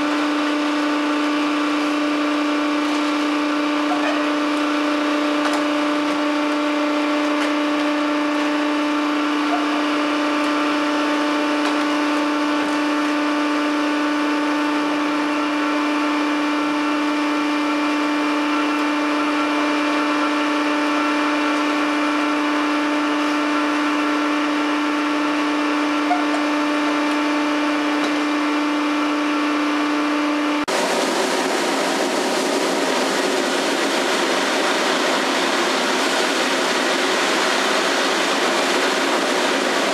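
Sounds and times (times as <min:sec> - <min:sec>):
machine hum: 0:00.0 - 0:39.9
wood chips pouring: 0:30.7 - 0:39.9.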